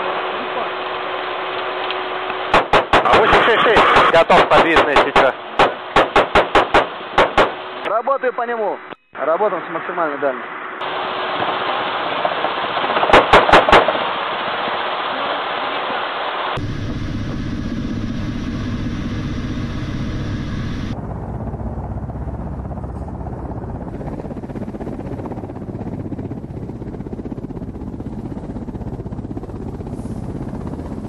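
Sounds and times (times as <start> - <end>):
helicopter rotor noise: 1.8 - 8.0, 16.6 - 31.0
dense steady rumble: 14.0 - 31.0.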